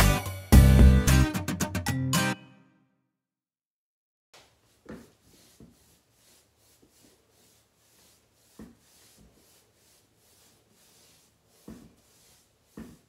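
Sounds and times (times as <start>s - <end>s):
paintbrush swishing on wood: 4.4s - 13.0s
soft knocks of brush: 4.4s - 13.0s.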